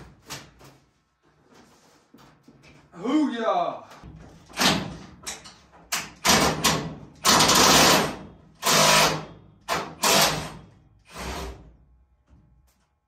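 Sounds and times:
power drill bursts: 0:06.3 - 0:11.6.

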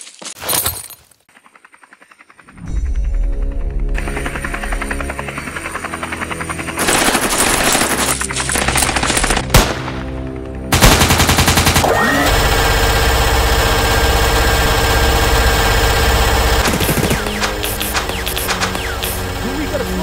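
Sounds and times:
machine-gun fire: 0:06.8 - 0:10.0, 0:10.7 - 0:20.0.

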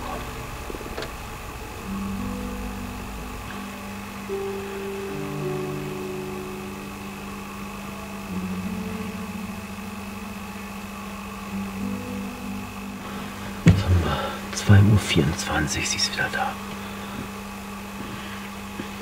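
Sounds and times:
faint high whine: 0:00.0 - 0:19.0
slow ambient music: 0:00.0 - 0:19.0.

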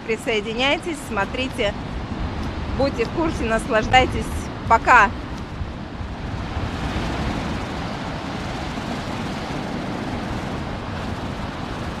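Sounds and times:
wind rumble on microphone: 0:00.0 - 0:12.0
surf washing up pebble beach: 0:00.4 - 0:12.0.

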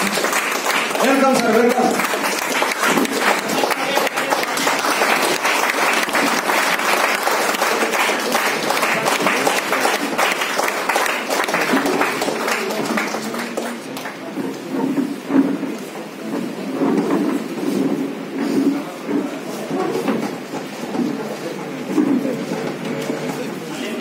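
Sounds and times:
audience applauding: 0:00.0 - 0:15.2.

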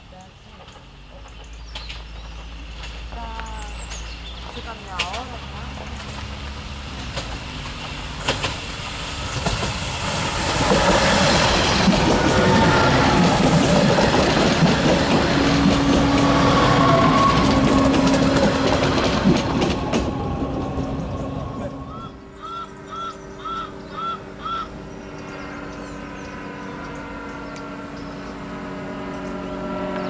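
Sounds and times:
wheels clicking on rails: 0:00.0 - 0:23.1
railcar running hum: 0:00.0 - 0:30.0.

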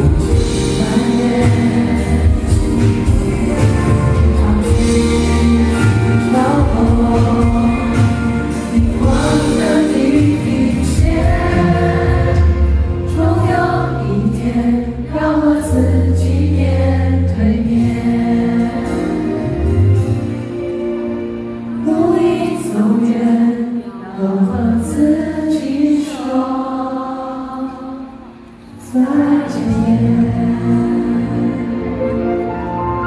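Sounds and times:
man singing into microphone: 0:00.0 - 0:14.7
instrumental backing music: 0:00.0 - 0:33.0.

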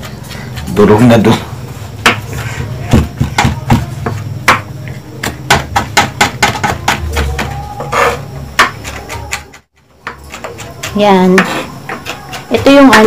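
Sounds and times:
knife chopping on wooden board: 0:02.0 - 0:02.3, 0:02.9 - 0:13.0.

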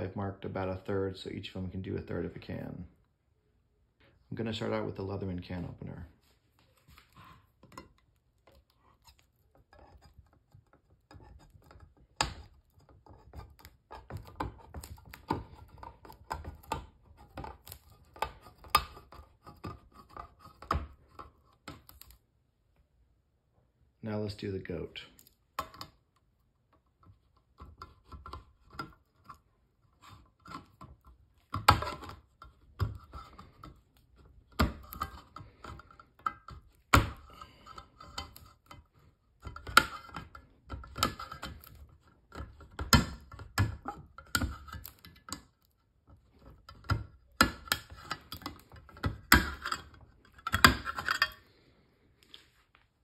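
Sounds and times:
can opener clicking and scraping: 0:27.6 - 0:45.5, 0:46.3 - 0:51.4.

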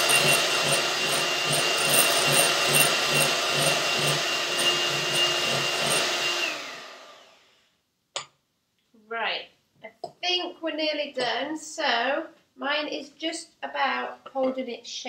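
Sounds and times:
electric hand mixer whipping cream: 0:00.0 - 0:07.4.

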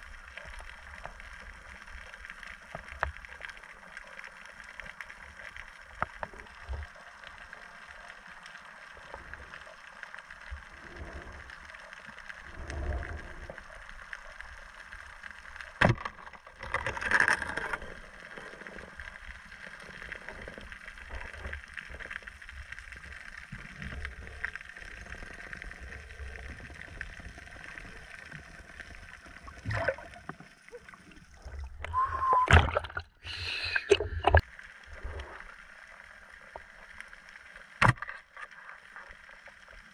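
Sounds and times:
water splashing: 0:00.0 - 0:39.9
muffled underwater noise: 0:37.8 - 0:39.8.

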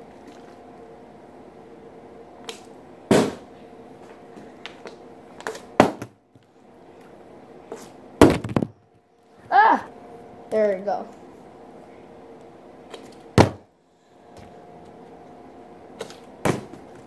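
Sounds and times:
faint steady hum: 0:00.0 - 0:17.0
plastic bottle thudding on table: 0:08.2 - 0:08.8.

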